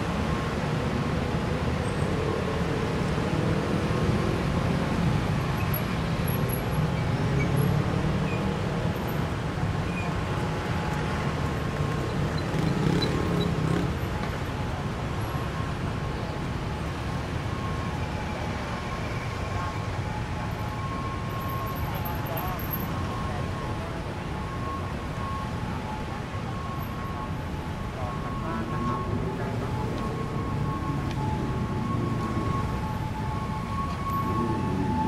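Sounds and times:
road traffic rumble: 0.0 - 35.0.

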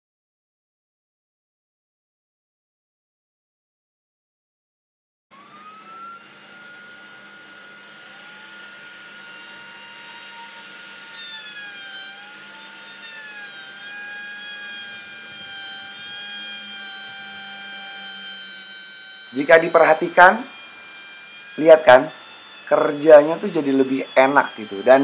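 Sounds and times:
router whining: 5.3 - 25.0.

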